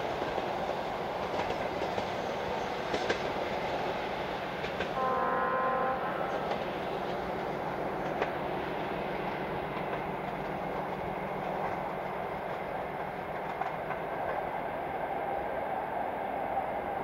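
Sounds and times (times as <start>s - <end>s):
train wheels rumbling on rails: 0.0s - 17.0s
faint clicks over rail joints: 0.1s - 5.0s, 6.3s - 14.6s.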